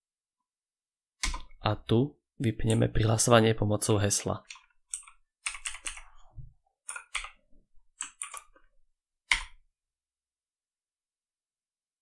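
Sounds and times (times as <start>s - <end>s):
computer keyboard typing: 4.4s - 6.1s, 6.8s - 8.7s, 9.3s - 9.5s.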